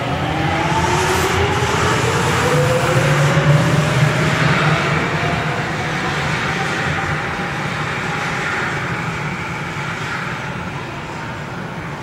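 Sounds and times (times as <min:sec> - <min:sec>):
subway train rumbling: 0:00.0 - 0:12.0.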